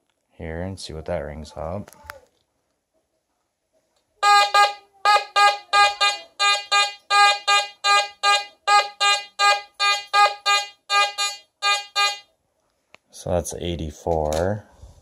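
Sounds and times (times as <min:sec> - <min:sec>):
metal detector short beeps: 0:04.2 - 0:12.2.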